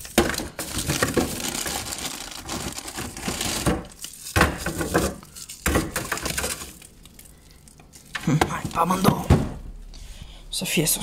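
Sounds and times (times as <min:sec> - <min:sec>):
frozen items knocking: 0:00.0 - 0:07.0
plastic bags crinkling: 0:00.0 - 0:09.2.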